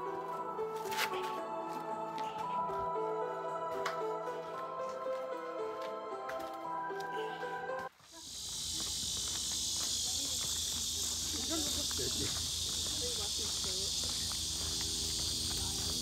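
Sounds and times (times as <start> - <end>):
cicadas buzzing: 7.9 - 16.0.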